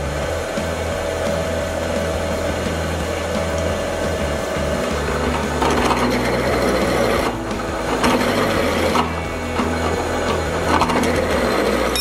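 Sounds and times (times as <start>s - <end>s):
drill press motor hum: 0.0s - 12.0s
drill bit grinding through steel: 4.2s - 12.0s.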